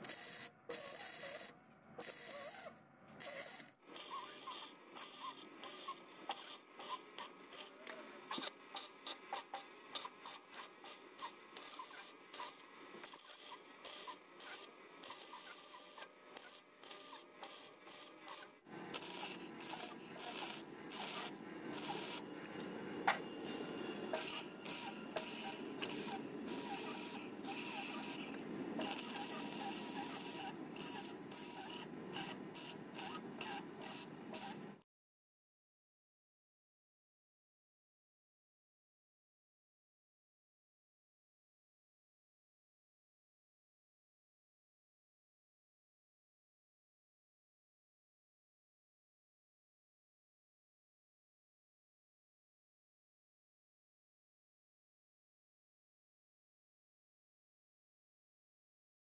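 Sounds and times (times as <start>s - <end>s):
crackling welding arc: 0.0s - 2.6s, 3.2s - 9.1s, 11.6s - 22.3s, 24.2s - 34.8s.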